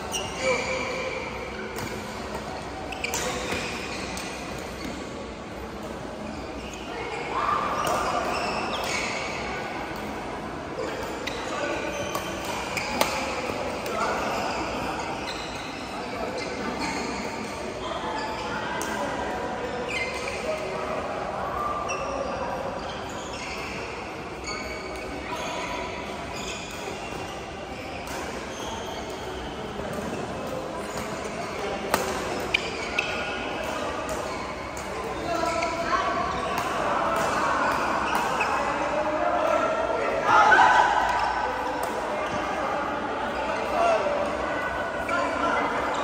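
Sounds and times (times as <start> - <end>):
shoes squeaking on court floor: 0.0 - 39.8
racket hitting shuttlecock: 12.1 - 14.0, 31.8 - 34.3.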